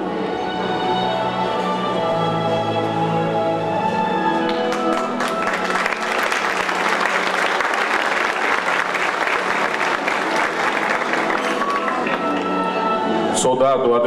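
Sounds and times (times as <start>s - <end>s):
background music: 0.0s - 14.0s
audience applauding: 4.4s - 13.0s.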